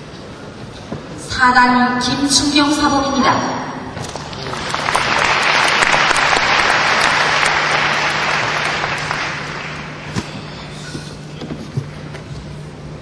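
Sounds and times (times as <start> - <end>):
audience applauding: 4.0 - 10.5.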